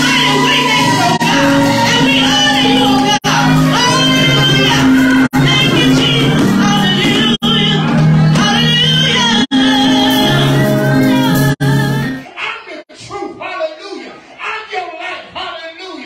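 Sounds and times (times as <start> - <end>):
woman singing gospel song: 0.0 - 12.2.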